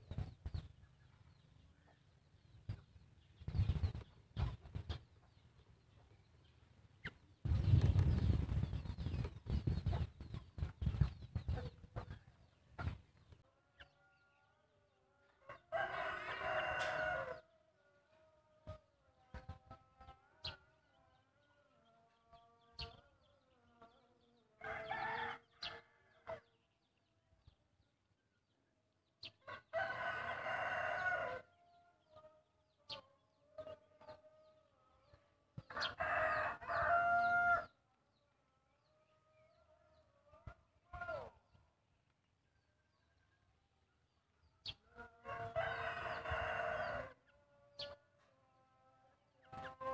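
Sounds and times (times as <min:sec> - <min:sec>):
rooster crowing: 0:15.4 - 0:17.4, 0:24.6 - 0:26.4, 0:29.5 - 0:31.5, 0:35.7 - 0:37.7, 0:44.9 - 0:47.9.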